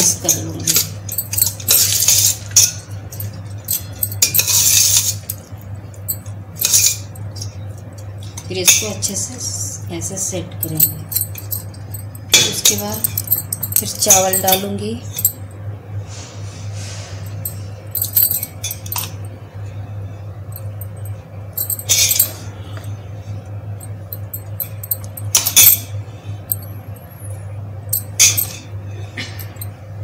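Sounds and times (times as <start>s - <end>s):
glass bangles jingling: 0.0s - 7.6s, 10.6s - 15.4s, 17.3s - 19.3s, 20.4s - 22.5s, 23.7s - 28.7s
steady low hum: 0.0s - 30.0s.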